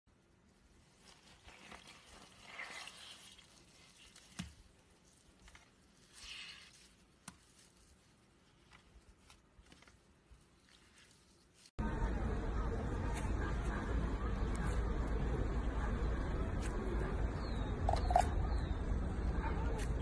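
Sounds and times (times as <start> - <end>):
slime squelches: 0.2 - 11.8
slime squishing and crackling: 0.4 - 11.7.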